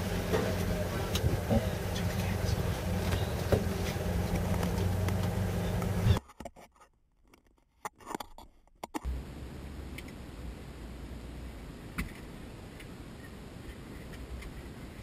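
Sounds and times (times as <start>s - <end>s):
car engine idling: 0.0s - 6.2s.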